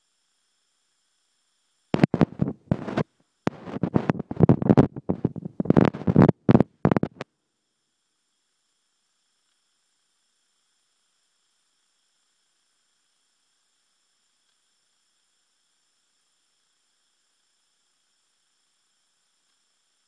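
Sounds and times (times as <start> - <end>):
microphone rubbing on fabric: 2.0 - 7.2.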